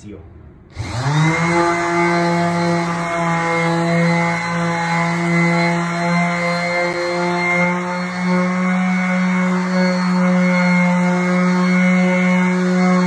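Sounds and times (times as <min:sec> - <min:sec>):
orbital sander on wood: 0:00.7 - 0:13.0.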